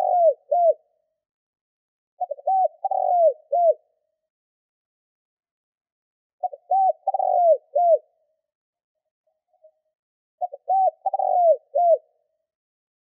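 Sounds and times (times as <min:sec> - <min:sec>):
dove cooing: 0:00.0 - 0:00.9, 0:02.2 - 0:03.9, 0:06.4 - 0:08.2, 0:10.4 - 0:12.2.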